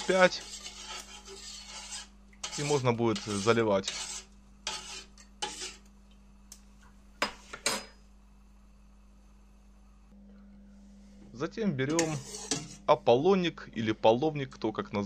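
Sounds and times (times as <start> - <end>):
spoon scraping pot: 0.0 - 5.9, 11.8 - 13.0
spoon stirring in metal pot: 0.0 - 5.9, 11.8 - 13.0.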